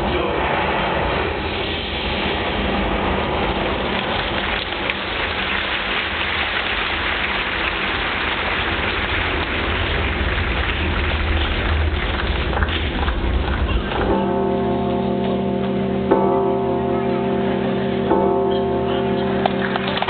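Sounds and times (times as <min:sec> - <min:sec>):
audience applauding: 0:03.6 - 0:13.8, 0:19.4 - 0:20.0.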